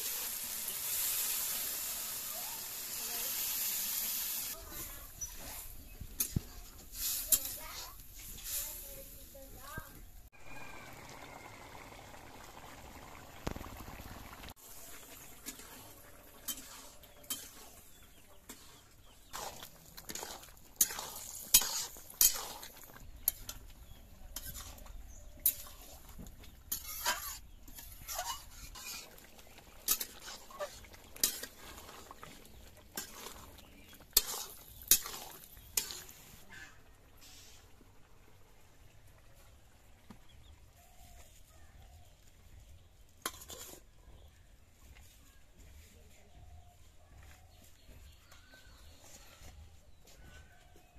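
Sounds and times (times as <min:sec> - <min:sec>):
metal spoon scraping a wok: 0:04.2 - 0:09.2, 0:14.7 - 0:37.6, 0:43.2 - 0:44.0.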